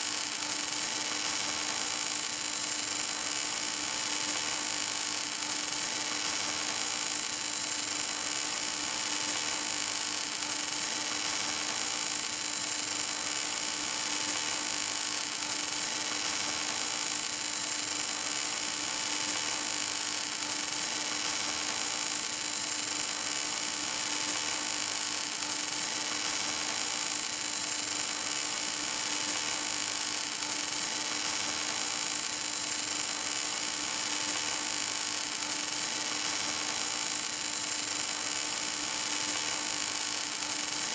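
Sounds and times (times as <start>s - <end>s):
welding arc hissing: 13.9s - 40.9s.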